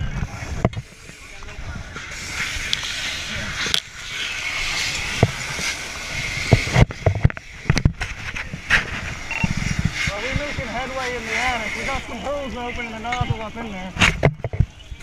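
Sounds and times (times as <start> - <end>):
fire hose hissing: 0.0 - 14.2.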